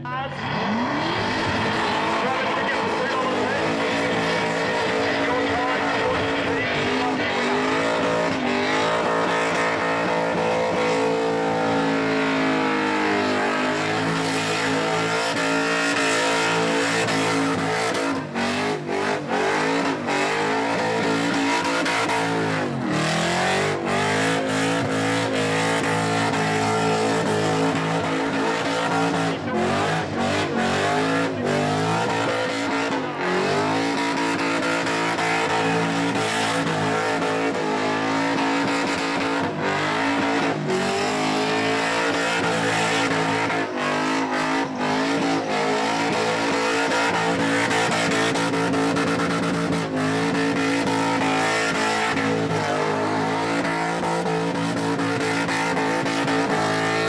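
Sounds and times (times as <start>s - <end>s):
car engine revving high: 0.0s - 57.0s.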